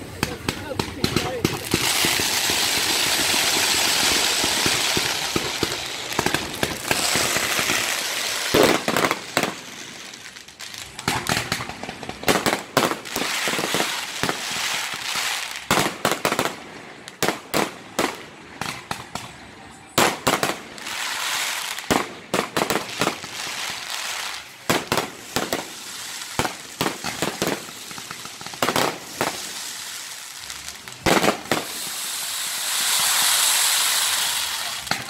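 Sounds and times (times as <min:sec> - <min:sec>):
fireworks hissing: 0:00.0 - 0:17.4, 0:20.1 - 0:35.0
fireworks shells bursting: 0:00.2 - 0:15.6.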